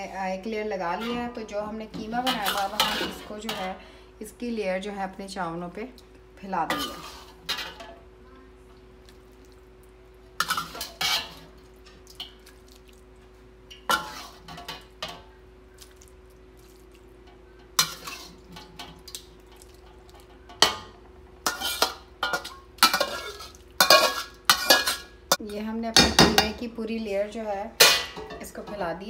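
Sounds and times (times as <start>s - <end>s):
faint steady hum: 0.0s - 29.0s
metal spoon scraping steel pots: 0.9s - 3.8s, 10.4s - 11.4s, 17.8s - 18.9s, 21.5s - 25.6s.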